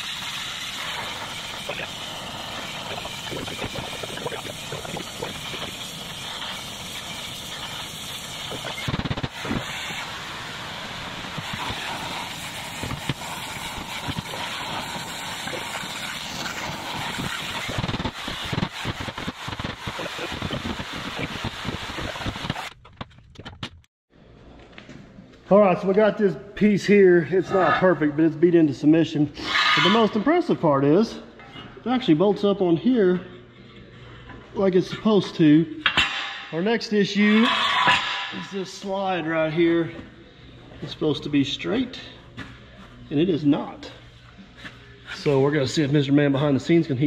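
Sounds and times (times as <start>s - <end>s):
roaring torch hiss: 0.0s - 22.7s.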